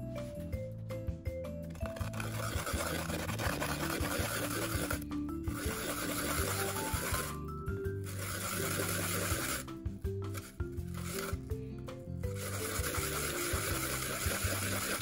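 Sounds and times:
garlic grated on metal grater: 1.8 - 7.4, 8.0 - 9.6, 10.4 - 11.4, 12.3 - 15.0.

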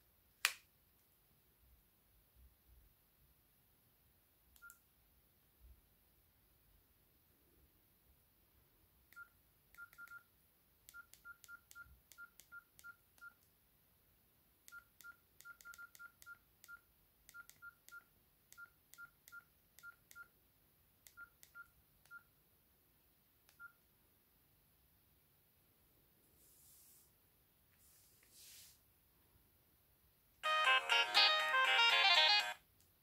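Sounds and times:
phone keypad beeps with clicks: 9.2 - 10.2, 14.7 - 20.3.

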